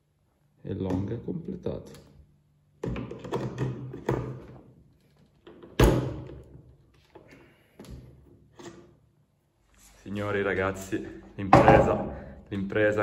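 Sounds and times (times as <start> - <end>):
hollow knocks and thunks: 11.5 - 12.3.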